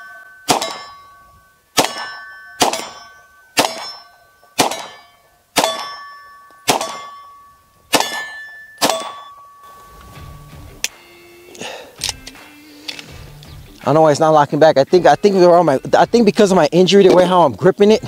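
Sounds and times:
steel target ringing: 0.0s - 11.4s
pistol shots: 0.4s - 1.1s, 1.7s - 7.3s, 7.9s - 9.4s.

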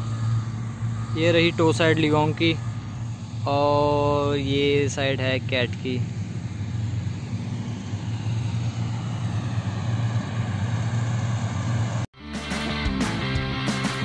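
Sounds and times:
diesel engine running: 0.0s - 14.0s
music: 12.2s - 14.0s.

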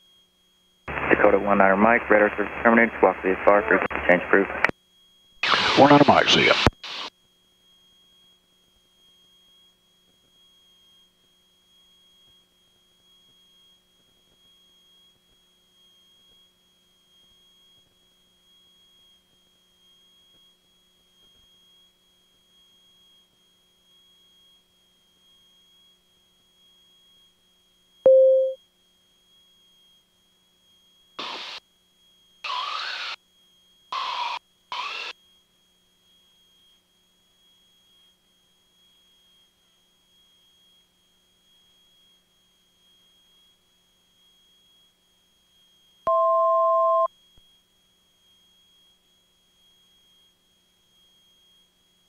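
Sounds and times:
high-pitched intercom whine: 0.9s - 4.7s, 5.4s - 7.1s, 34.0s - 35.2s
loud low beep: 28.1s - 28.6s, 46.1s - 47.1s.

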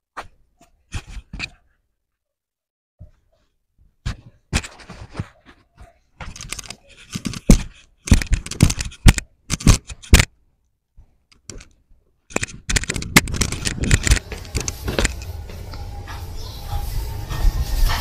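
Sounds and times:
scraping and rustling: 11.4s - 18.0s.

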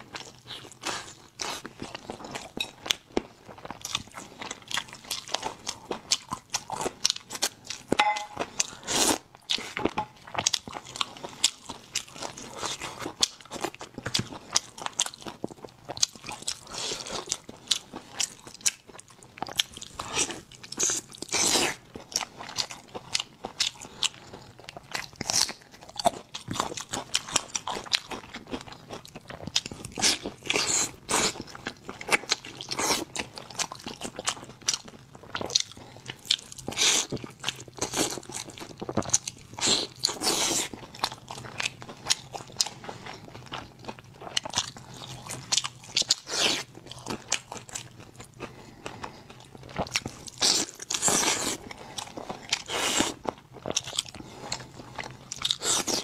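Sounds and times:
person chewing meat: 0.0s - 56.0s.

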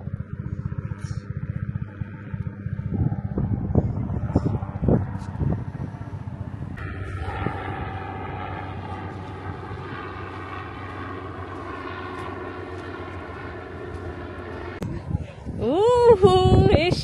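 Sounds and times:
engine droning: 0.0s - 17.0s.

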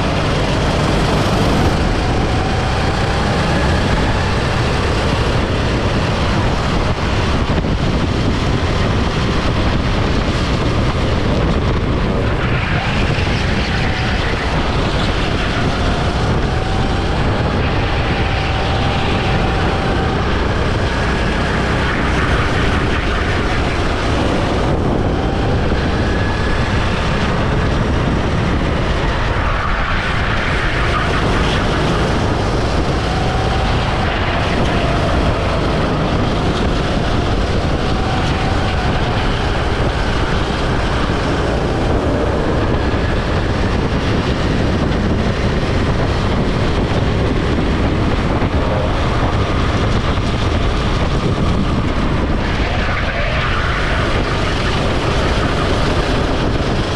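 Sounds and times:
go-kart engine racing: 0.0s - 56.9s
wind rushing on microphone: 0.0s - 56.9s.

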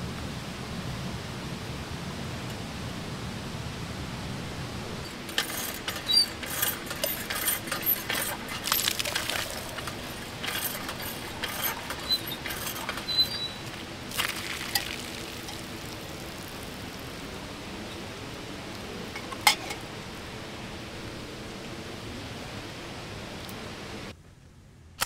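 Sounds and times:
metal pump handle clanking: 5.0s - 15.8s, 19.2s - 19.8s
water running into a kettle: 5.1s - 17.2s.

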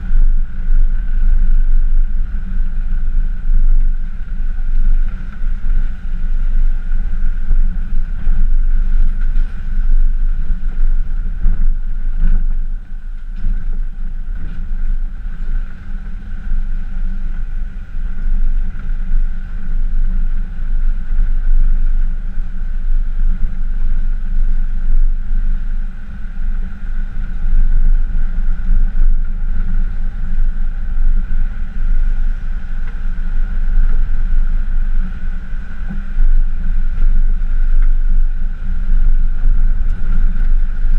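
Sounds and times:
thin constant whine: 0.0s - 40.9s.

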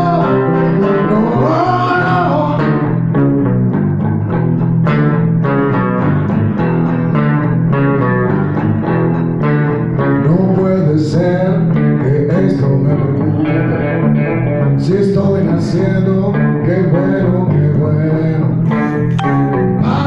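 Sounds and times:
electric bass line: 0.0s - 20.0s
acoustic guitar strumming: 18.6s - 20.0s.

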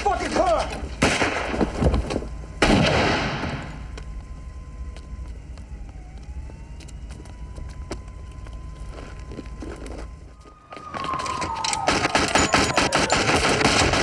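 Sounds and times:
echoing gunshots: 1.0s - 1.7s, 2.6s - 3.8s, 11.8s - 14.0s.

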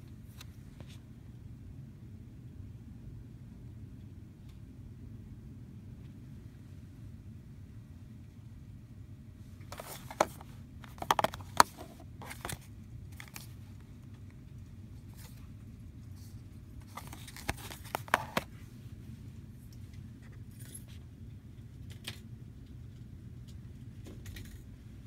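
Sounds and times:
plastic package crackling: 9.7s - 13.5s, 16.8s - 18.5s.

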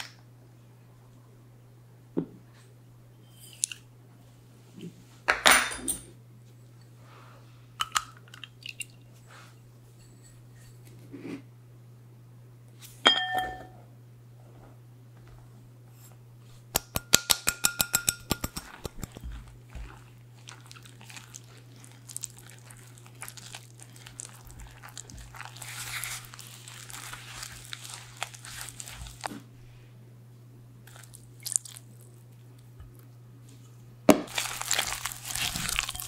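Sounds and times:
clink on ceramic bowl: 13.1s - 13.8s
bowl tapping against rim: 16.8s - 19.0s
spatula scraping and stirring dough: 17.9s - 29.5s.

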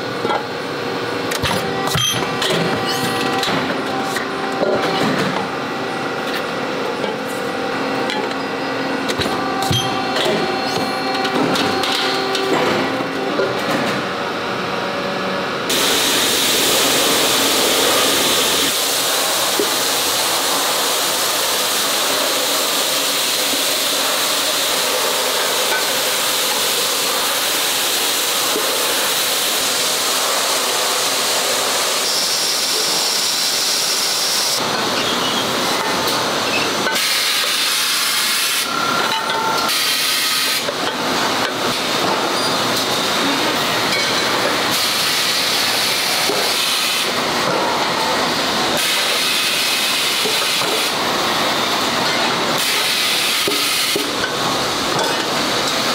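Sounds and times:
compressed air hissing: 15.7s - 23.4s.

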